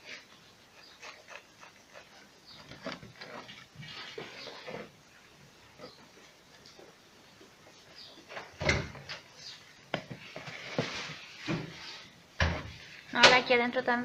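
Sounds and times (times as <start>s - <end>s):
scraping of pump parts: 1.1s - 5.0s, 10.0s - 13.3s.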